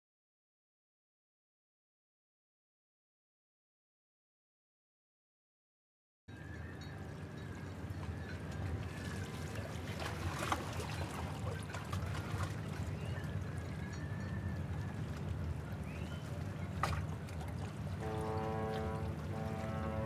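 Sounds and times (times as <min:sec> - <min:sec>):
water splashing and trickling: 0:06.4 - 0:20.0.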